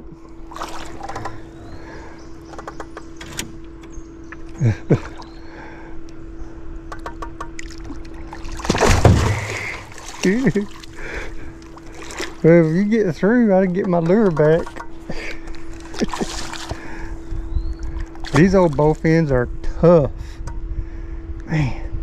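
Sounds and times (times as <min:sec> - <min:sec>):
steady hum: 0:00.0 - 0:22.0
fish thrashing and splashing: 0:00.3 - 0:02.0, 0:07.5 - 0:13.0, 0:13.8 - 0:17.1, 0:17.8 - 0:19.1
knocks and clicks: 0:02.5 - 0:05.2, 0:06.9 - 0:07.8, 0:13.7 - 0:15.0.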